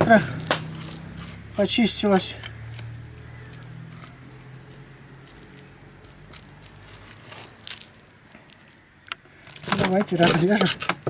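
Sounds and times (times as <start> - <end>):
knife scraping fish scales: 0.8 - 1.4, 2.3 - 7.9.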